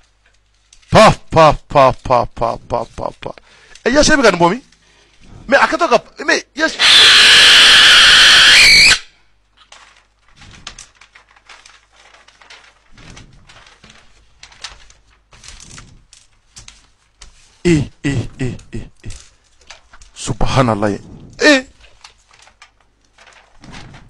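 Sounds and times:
paper crinkling and rustling: 0.0 - 1.0, 9.5 - 17.6, 19.0 - 24.0
person speaking: 0.9 - 6.9, 17.6 - 19.4, 20.1 - 22.0
loud harsh blast: 6.8 - 9.1.

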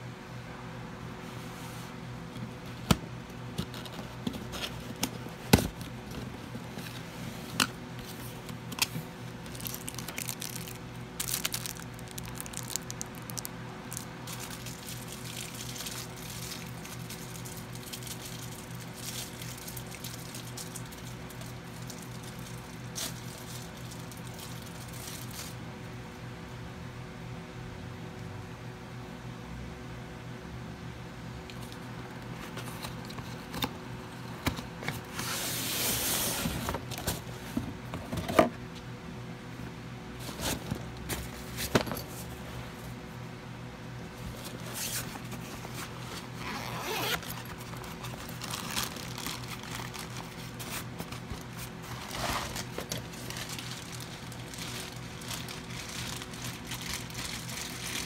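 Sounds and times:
cardboard and packaging rustle: 1.4 - 25.6, 34.4 - 38.5, 40.2 - 43.0, 44.1 - 58.0.

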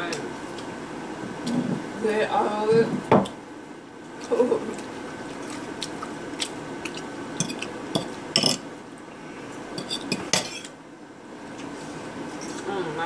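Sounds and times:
fork scraping on ceramic plate: 9.8 - 10.7.

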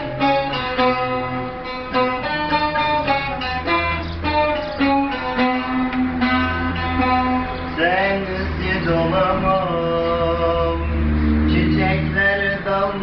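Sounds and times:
long-necked lute plucked: 0.0 - 8.0
man singing: 7.7 - 13.0.

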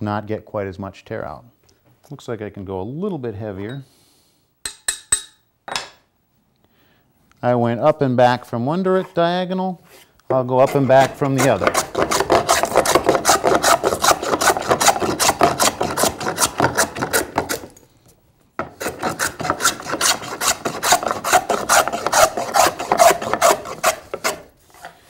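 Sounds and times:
hand plane rasping wood: 10.6 - 17.7, 18.6 - 24.9.

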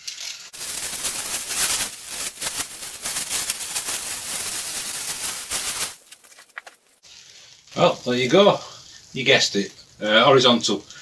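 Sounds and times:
plastic wrapping crinkling: 0.0 - 7.6.

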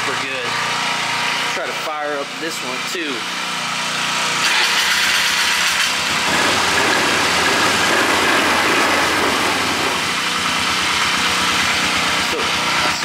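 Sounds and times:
quad engine idling: 6.1 - 13.0
small quad engine idling: 6.1 - 13.0.

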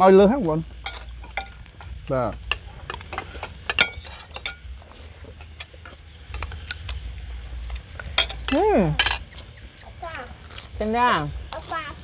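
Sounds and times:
cutlery clinking on plates: 0.8 - 4.7, 8.1 - 9.4.

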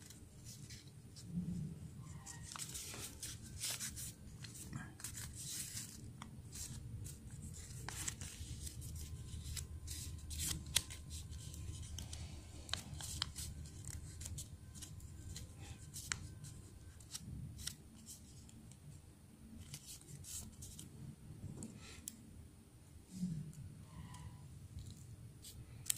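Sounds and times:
paper rustling and creasing: 0.0 - 18.6, 19.6 - 20.9
low steady hum: 0.0 - 25.9.

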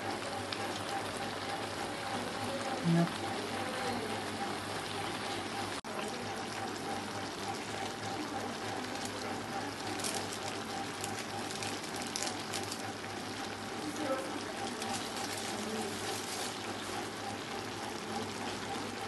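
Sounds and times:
curry simmering in a pan: 0.0 - 19.0.

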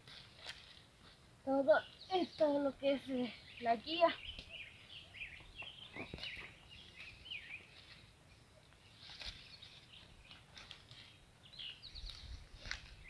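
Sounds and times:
plant stems rustling and snapping: 0.0 - 1.2, 9.0 - 11.2, 11.9 - 13.0
small birds chirping: 0.2 - 13.0.

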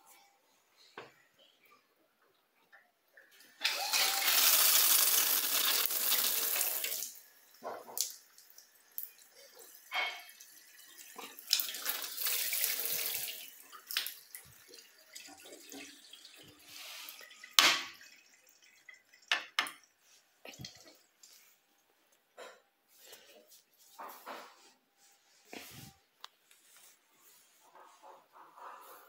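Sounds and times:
water rushing from shower head: 3.6 - 7.2.

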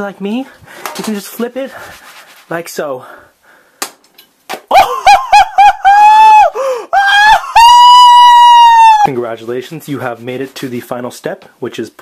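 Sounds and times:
man whooping in falsetto: 4.7 - 9.1.

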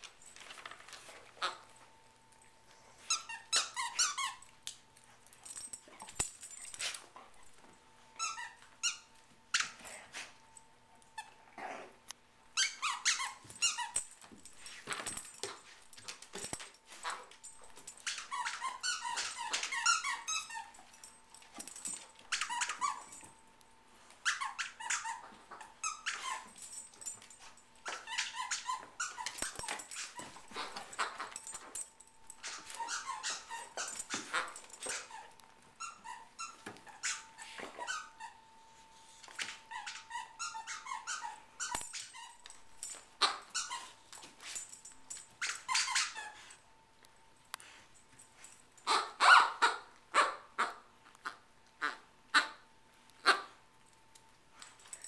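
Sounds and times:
squeaky toys squeaking: 3.1 - 4.4, 8.2 - 9.8, 12.6 - 14.0, 17.9 - 20.8, 21.8 - 23.2, 24.2 - 27.2, 27.8 - 31.8, 32.4 - 38.4, 39.4 - 44.0, 45.4 - 46.5.

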